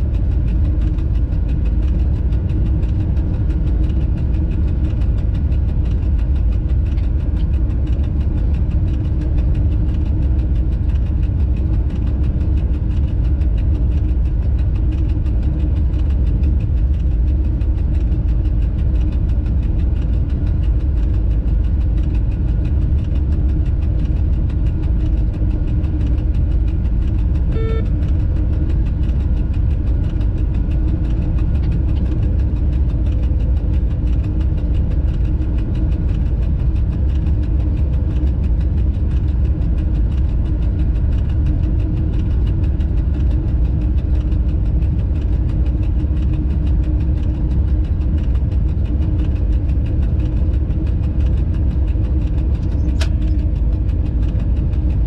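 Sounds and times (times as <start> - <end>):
locomotive cab rumble and hum: 0.0 - 55.0
short beep: 27.6 - 27.9.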